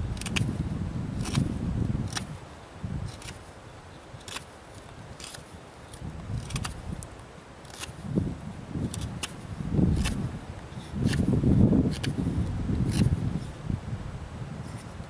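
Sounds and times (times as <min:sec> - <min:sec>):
knife scraping wood: 0:00.1 - 0:00.6, 0:01.2 - 0:02.4, 0:03.0 - 0:03.5, 0:04.2 - 0:08.1, 0:08.8 - 0:13.6.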